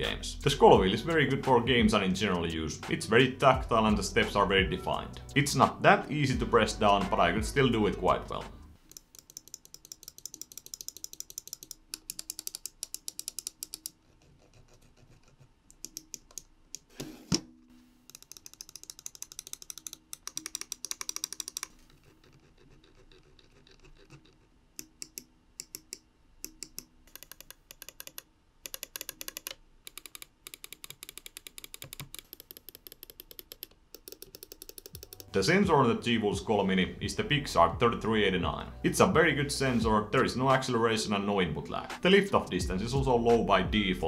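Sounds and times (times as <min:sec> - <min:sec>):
computer mouse clicking: 0:08.8 - 0:17.1, 0:18.0 - 0:35.3.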